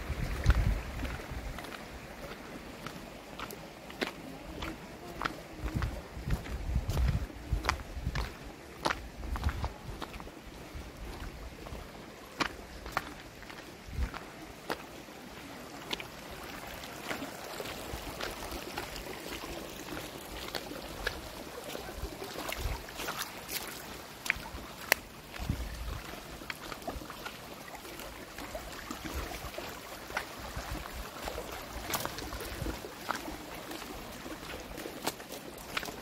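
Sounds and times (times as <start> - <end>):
wind rumbling on microphone: 0.0 - 2.4, 4.7 - 12.0, 13.8 - 14.4, 25.3 - 26.8
creek water running over rocks: 0.0 - 36.0.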